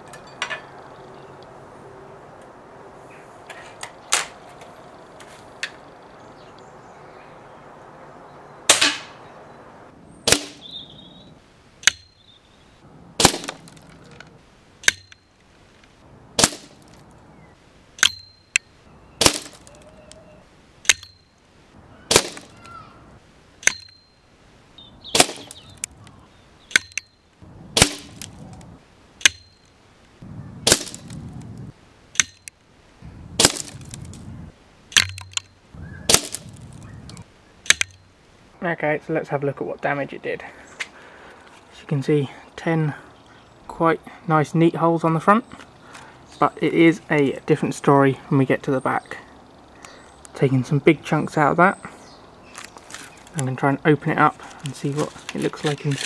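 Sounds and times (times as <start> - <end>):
air rifle shots cracking: 8.7 - 9.2, 10.2 - 10.7, 13.2 - 14.2, 16.4 - 17.1, 19.2 - 19.8, 22.1 - 22.6, 25.1 - 26.0, 27.7 - 28.4, 30.6 - 31.2, 33.4 - 33.9, 36.1 - 36.7.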